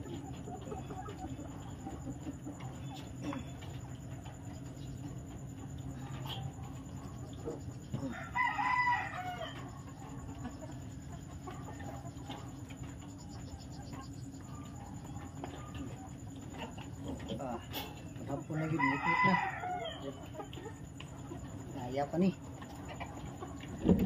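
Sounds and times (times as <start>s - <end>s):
steady low hum: 0.0s - 24.0s
rooster crowing: 8.0s - 9.8s, 18.5s - 20.2s.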